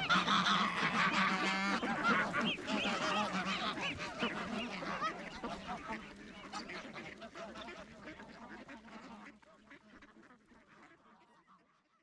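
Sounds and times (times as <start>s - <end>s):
geese honking: 0.0s - 9.2s
ducks quacking: 0.0s - 11.9s.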